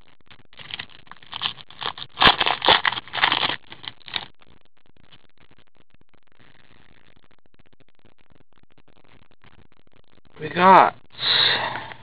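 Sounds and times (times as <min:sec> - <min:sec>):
foil packs crinkling: 0:00.5 - 0:04.3.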